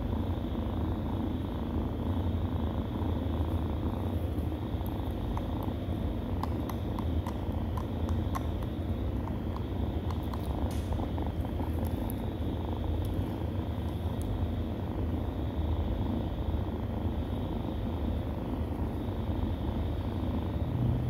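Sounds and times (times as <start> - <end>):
cat purring: 0.0 - 21.0
kittens suckling clicks: 4.8 - 14.4.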